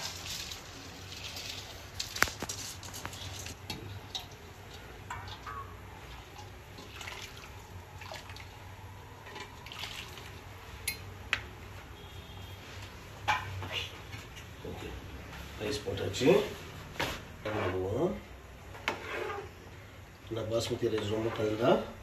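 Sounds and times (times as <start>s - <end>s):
water pouring and dripping: 0.0s - 11.4s.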